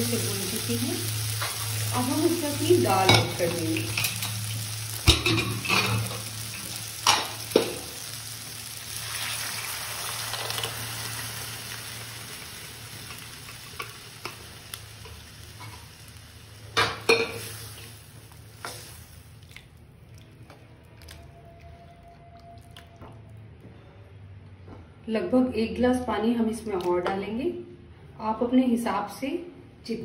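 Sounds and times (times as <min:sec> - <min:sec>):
vegetables sizzling in a frying pan: 0:00.0 - 0:19.4.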